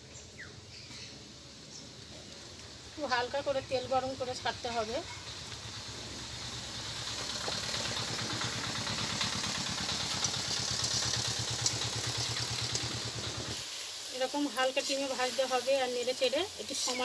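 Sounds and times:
dough sizzling in hot oil: 1.5s - 17.0s
low engine throb: 5.7s - 13.5s.

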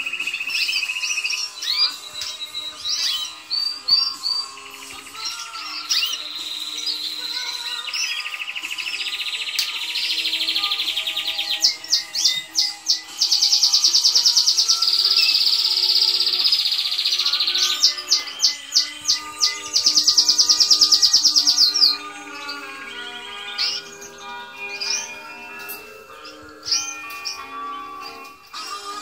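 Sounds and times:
canary chirps: 0.0s - 29.0s
canary singing trills: 0.0s - 29.0s.

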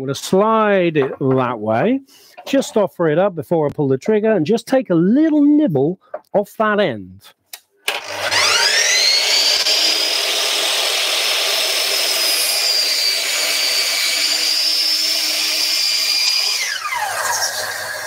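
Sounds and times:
mitre saw cutting wood: 7.9s - 18.0s.

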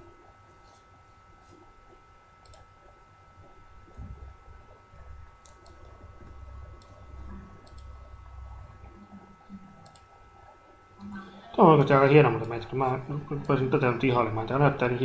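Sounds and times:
thin steady hum: 0.0s - 15.0s
computer mouse clicking: 2.4s - 2.7s, 5.4s - 7.0s, 7.6s - 8.0s, 9.8s - 10.2s.

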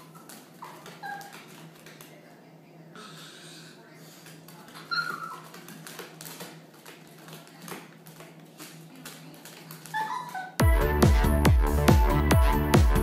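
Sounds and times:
puppy whimpering: 0.0s - 1.5s, 4.8s - 5.6s, 9.9s - 10.6s
claws clicking on hardwood floor: 4.2s - 10.4s.

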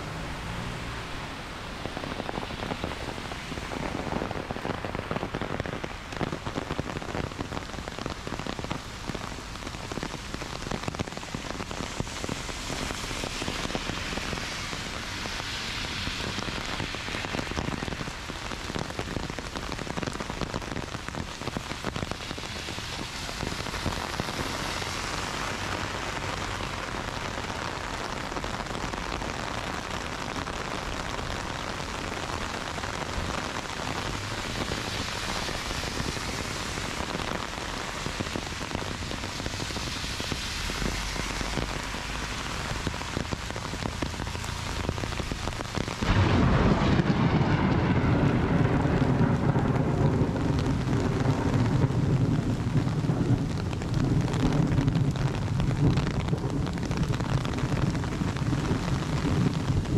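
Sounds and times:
heavy rain: 0.0s - 59.9s.

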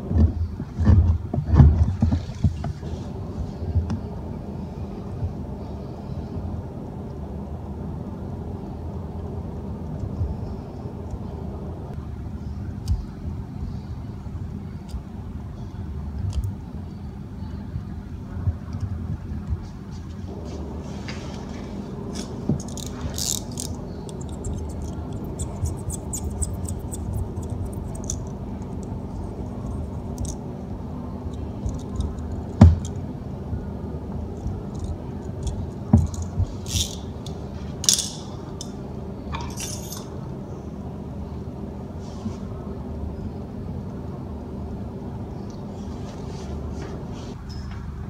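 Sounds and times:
steady low hum: 0.0s - 48.0s
hand tools clicking and scraping: 39.4s - 40.1s.

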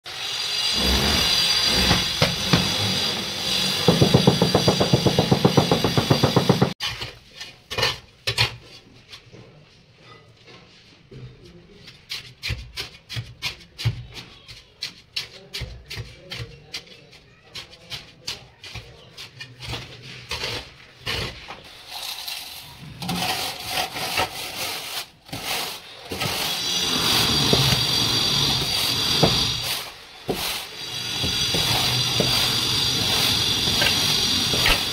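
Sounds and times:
shovel scraping sand and cement: 17.6s - 34.9s.

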